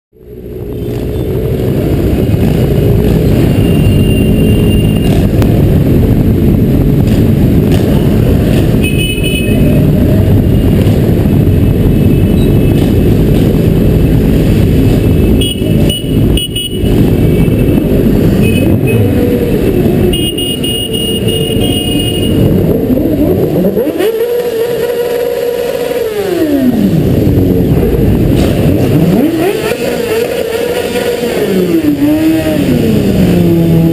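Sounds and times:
motorcycle engine revving: 0:00.2 - 0:33.9
motorcycle engines running: 0:00.2 - 0:33.9.

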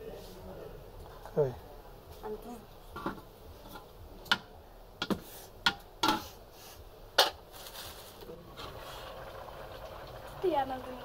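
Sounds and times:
utensils clanking on metal pot: 0:03.0 - 0:06.4.

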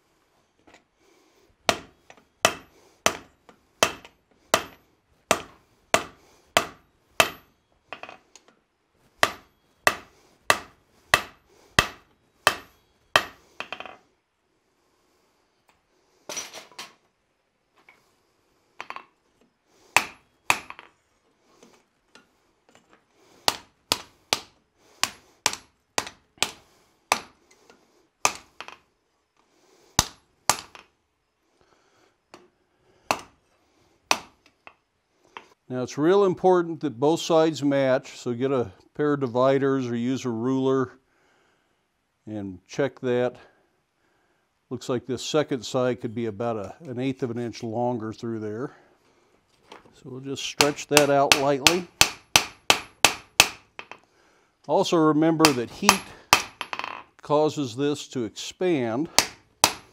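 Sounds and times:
hammer striking steel on anvil: 0:01.7 - 0:08.1, 0:09.2 - 0:13.9, 0:20.0 - 0:20.9, 0:50.6 - 0:54.0, 0:55.4 - 0:56.8, 0:59.2 - 0:59.9.

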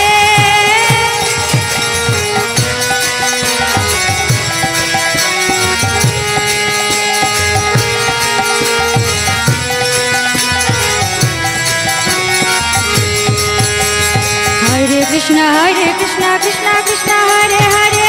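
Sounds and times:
person singing: 0:00.0 - 0:01.8.

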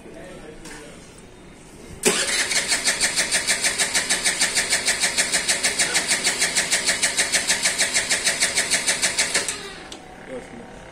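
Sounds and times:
scooter engine idling: 0:02.1 - 0:10.9.

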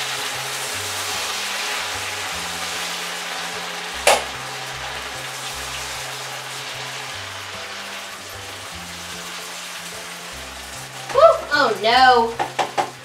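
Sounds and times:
gnocchi sizzling in butter: 0:00.0 - 0:13.0
spoon knocking against pan: 0:12.3 - 0:13.0.

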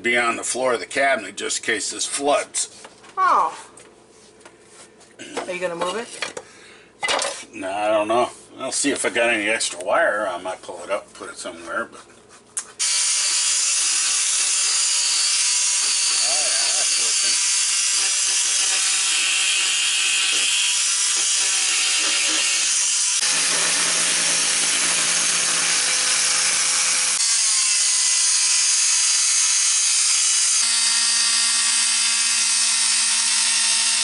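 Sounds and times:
oscillating multi-tool buzzing: 0:12.8 - 0:34.0.

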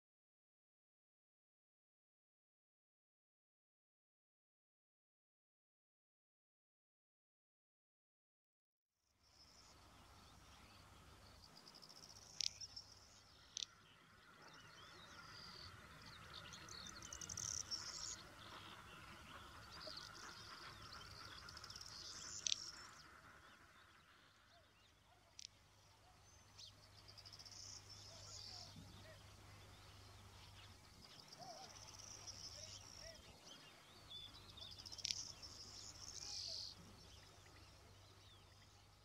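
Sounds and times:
small birds chirping: 0:09.2 - 0:39.0
insects chirping: 0:10.6 - 0:13.8.

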